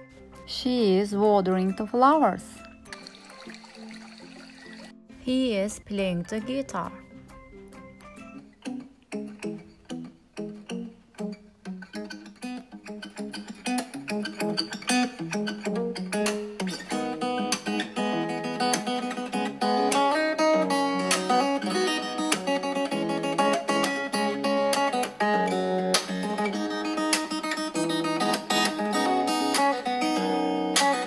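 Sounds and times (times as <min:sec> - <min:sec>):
guitar plucked notes: 0:05.0 - 0:31.0.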